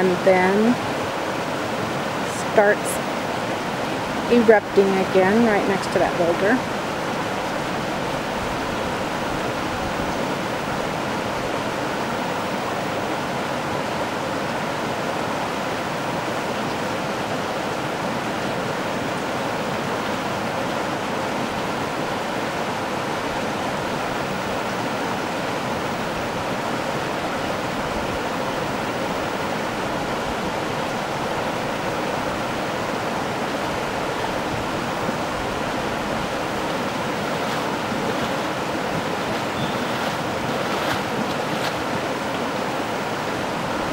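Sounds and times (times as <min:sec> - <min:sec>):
stream rushing: 0:00.0 - 0:43.9
water bubbling and churning: 0:06.0 - 0:43.9.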